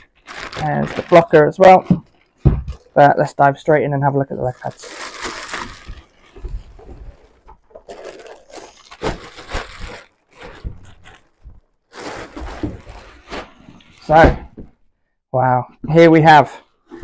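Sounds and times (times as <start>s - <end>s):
plastic wrapping crinkling: 0.0s - 3.1s, 4.2s - 14.2s.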